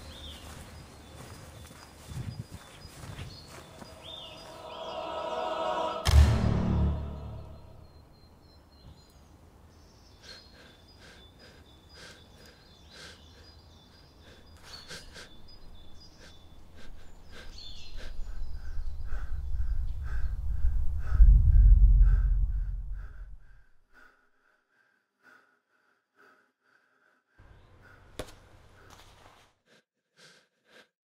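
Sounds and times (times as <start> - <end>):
high bird chirps: 0.0 - 5.5, 6.9 - 20.4
low rumble: 3.8 - 8.0, 18.6 - 23.6.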